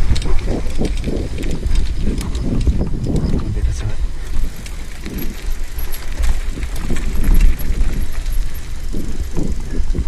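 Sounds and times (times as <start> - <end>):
mountain bike rattling and clicking: 0.0 - 10.0
wind on microphone: 0.0 - 10.0.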